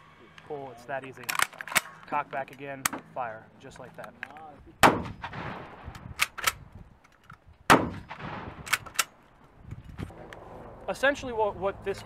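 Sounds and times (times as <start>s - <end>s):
shotgun bolt metallic clacks: 1.0s - 3.1s, 3.7s - 10.0s
shotgun shot echoing: 4.8s - 5.8s, 7.7s - 8.8s.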